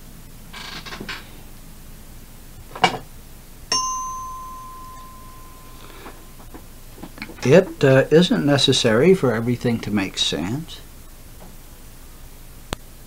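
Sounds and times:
bell-like ding ringing: 0:03.7 - 0:06.4.

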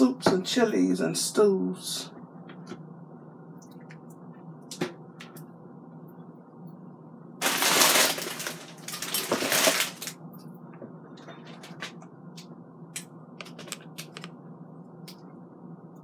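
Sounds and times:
plastic bag crinkling: 0:07.4 - 0:10.2.

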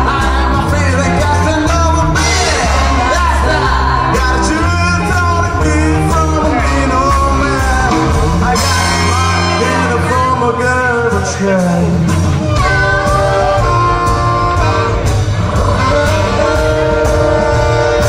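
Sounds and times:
person singing: 0:00.0 - 0:14.6
big band playing swing: 0:00.0 - 0:18.0.

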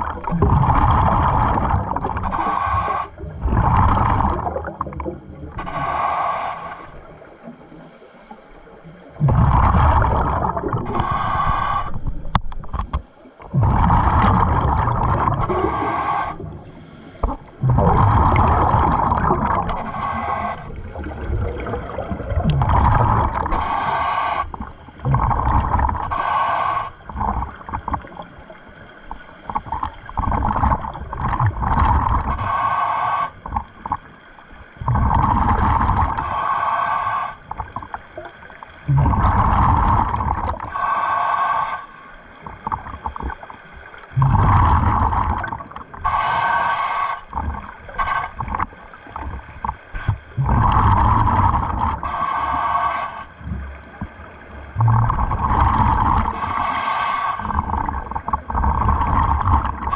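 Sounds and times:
hissing regulator inhale: 0:02.2 - 0:03.3, 0:05.6 - 0:07.1, 0:10.8 - 0:12.2, 0:15.0 - 0:20.9, 0:22.9 - 0:27.6, 0:29.0 - 0:30.9, 0:32.1 - 0:33.8, 0:34.9 - 0:37.9, 0:38.9 - 0:42.4, 0:44.2 - 0:49.2, 0:49.9 - 0:53.8, 0:54.8 - 0:59.9
bubbling exhale: 0:09.2 - 0:12.2, 0:13.5 - 0:28.3, 0:44.0 - 0:53.8, 0:54.7 - 0:59.9.

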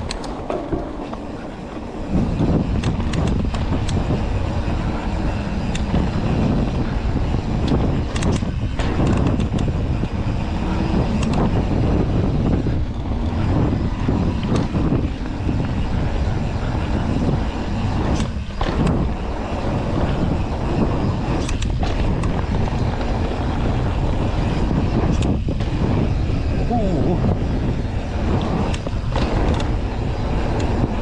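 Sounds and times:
bike knocks and rattles: 0:00.0 - 0:04.6, 0:05.2 - 0:10.4, 0:11.0 - 0:26.4, 0:27.2 - 0:31.0
tyres rolling over dirt: 0:00.0 - 0:05.0
wind rumble on microphone: 0:00.0 - 0:31.0.

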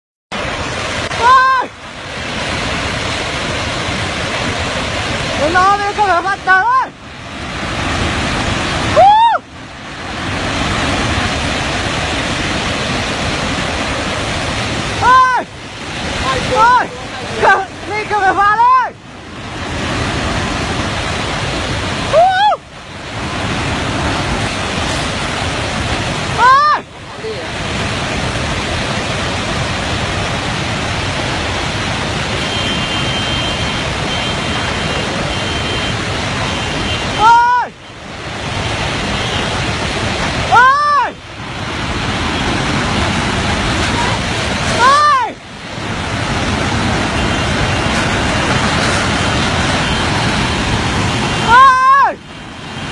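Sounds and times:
flood water roaring: 0:00.3 - 0:52.9
person yelling: 0:01.1 - 0:01.8, 0:05.4 - 0:06.9, 0:08.9 - 0:09.4, 0:15.0 - 0:15.5, 0:16.2 - 0:19.0, 0:22.1 - 0:22.6, 0:26.3 - 0:27.5, 0:37.2 - 0:37.8, 0:40.5 - 0:41.2, 0:43.9 - 0:45.4, 0:51.4 - 0:52.2.

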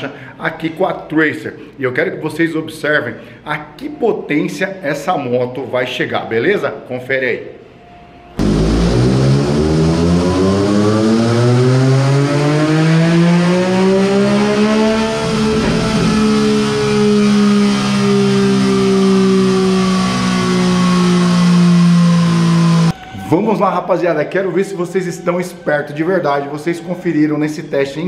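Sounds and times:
dyno rollers coasting: 0:08.4 - 0:23.0
motorcycle engine revving under load: 0:08.4 - 0:23.0.

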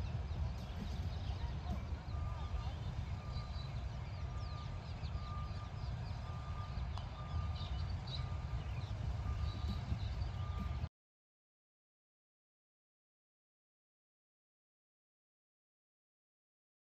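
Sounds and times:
birds chirping: 0:00.0 - 0:10.9
wind rumble on microphone: 0:00.0 - 0:10.9.

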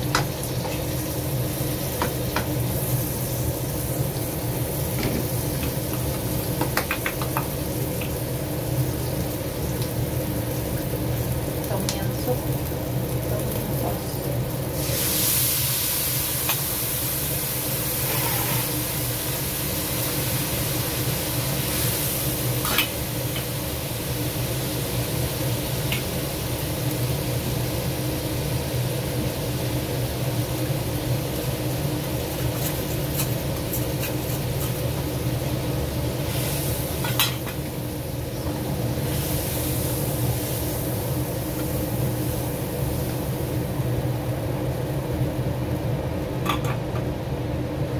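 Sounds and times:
food sizzling in wok: 0:00.0 - 0:47.9.

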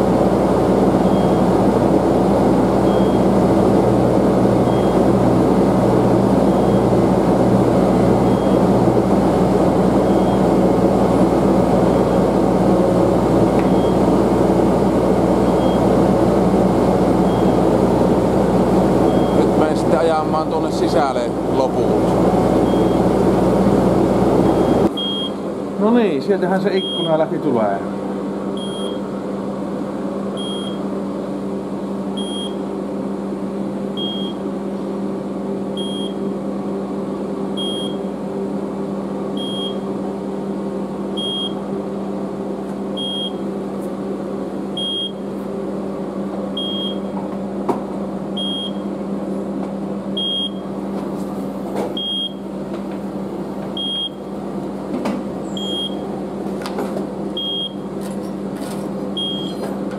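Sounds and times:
lifting machine humming: 0:00.0 - 0:59.9
high warning beep: 0:04.7 - 0:05.0, 0:08.2 - 0:08.6, 0:15.4 - 0:15.8, 0:19.1 - 0:19.5, 0:22.6 - 0:23.0, 0:24.5 - 0:25.4, 0:26.8 - 0:27.2, 0:28.6 - 0:29.0, 0:30.4 - 0:30.8, 0:32.2 - 0:32.6, 0:34.0 - 0:34.4, 0:35.8 - 0:36.2, 0:37.6 - 0:38.0, 0:39.4 - 0:39.8, 0:41.2 - 0:41.6, 0:43.0 - 0:43.4, 0:44.8 - 0:45.2, 0:46.6 - 0:47.1, 0:48.4 - 0:48.8, 0:50.2 - 0:50.6, 0:52.0 - 0:52.4, 0:53.8 - 0:54.2, 0:55.6 - 0:56.0, 0:57.4 - 0:57.8, 0:59.2 - 0:59.6.

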